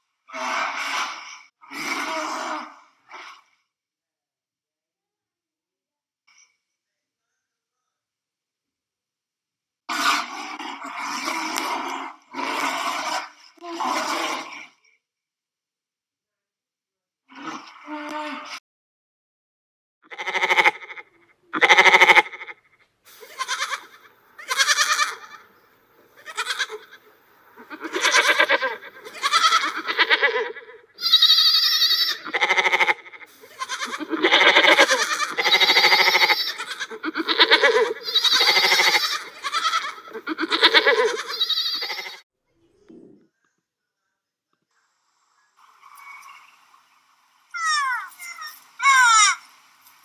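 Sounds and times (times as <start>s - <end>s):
goats bleating: 20.1s - 22.5s, 23.2s - 25.4s, 26.2s - 27.0s, 27.6s - 42.2s.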